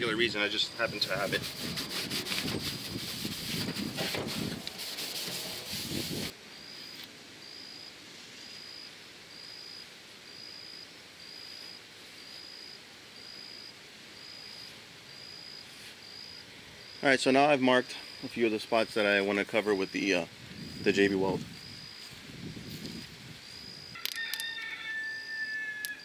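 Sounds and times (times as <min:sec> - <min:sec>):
cloth rag scrubbing aluminum: 0:00.8 - 0:06.3
insect chirping: 0:06.5 - 0:17.1, 0:17.8 - 0:19.0, 0:19.7 - 0:24.6.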